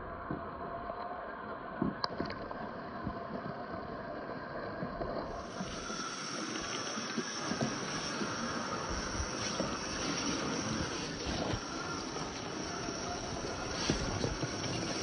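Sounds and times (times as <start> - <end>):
electric motor whine: 5.4 - 15.0
steady rushing hiss: 5.4 - 15.0.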